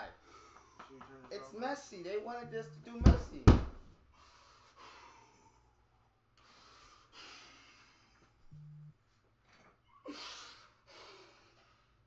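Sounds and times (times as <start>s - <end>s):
man breathing hard: 0.0s - 0.9s, 4.1s - 8.4s, 10.1s - 12.0s.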